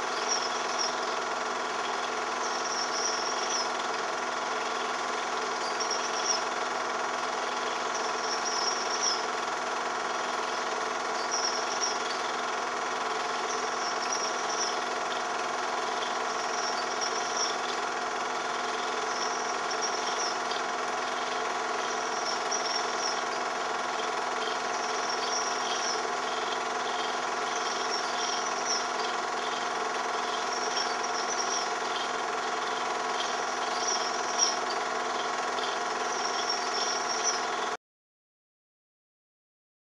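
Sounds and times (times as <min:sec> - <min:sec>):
faint high chirp: 0:00.0 - 0:01.0, 0:01.8 - 0:03.7, 0:05.6 - 0:06.5, 0:07.6 - 0:09.2, 0:11.2 - 0:12.3, 0:24.0 - 0:37.7
film projector whirring: 0:00.0 - 0:37.8.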